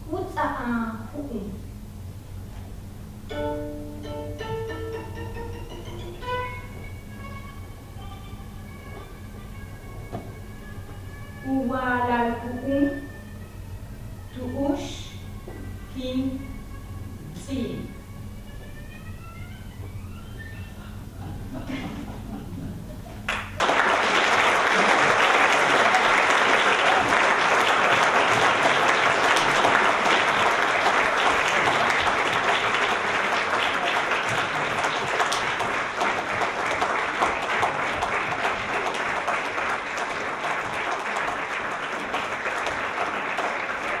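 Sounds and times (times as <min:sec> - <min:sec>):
audience applauding: 0:23.2 - 0:44.0.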